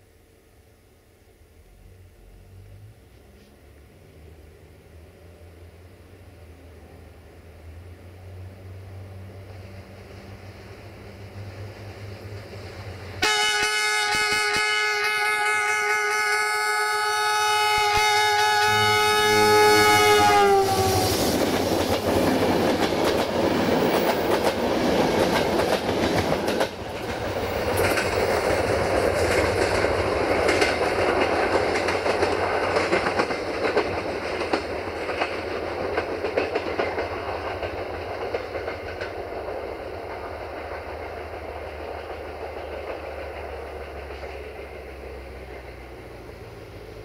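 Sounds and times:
train rumbling past: 0:00.0 - 0:47.0
locomotive horn: 0:13.2 - 0:21.3
wheels clicking over rail joints: 0:19.8 - 0:47.0.

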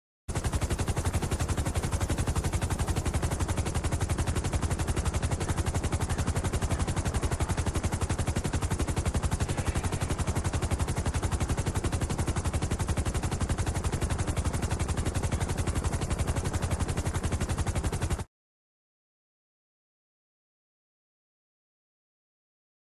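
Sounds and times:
fast rattle of sharp pulses: 0:00.3 - 0:18.2.

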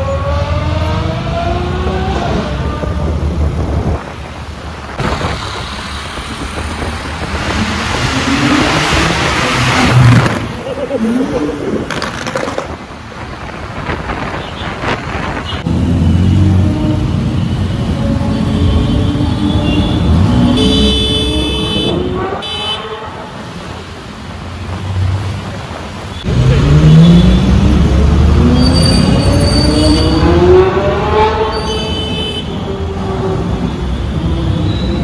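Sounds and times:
street traffic: 0:00.0 - 0:35.0
car horns honking: 0:17.1 - 0:23.4
vehicle engine accelerating hard: 0:26.2 - 0:31.5.

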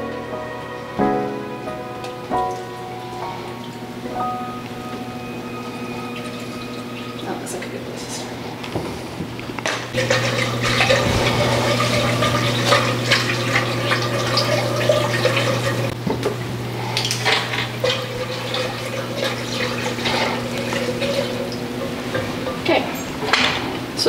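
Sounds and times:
low hum: 0:00.0 - 0:17.2
whisk sloshing liquid: 0:10.0 - 0:15.9, 0:17.0 - 0:22.4.

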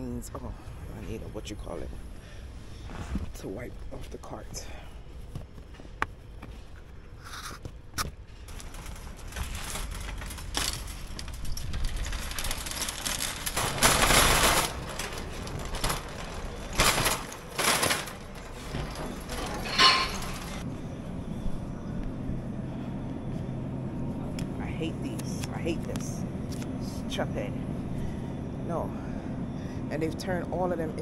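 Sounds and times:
shopping cart wheels rattling: 0:08.5 - 0:20.7.

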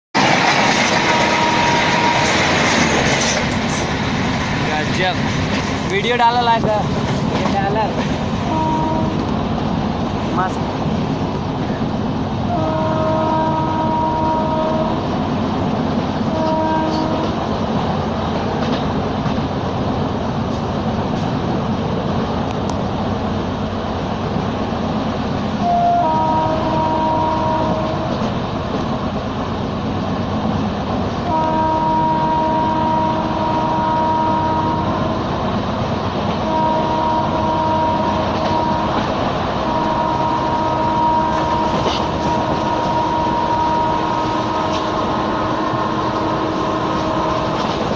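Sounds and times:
train wheels rumbling on track: 0:00.1 - 0:47.9
train horn blasts: 0:01.0 - 0:02.5, 0:08.5 - 0:09.3, 0:12.5 - 0:15.1, 0:16.2 - 0:17.4, 0:25.6 - 0:28.2, 0:31.2 - 0:35.3, 0:36.4 - 0:47.7.

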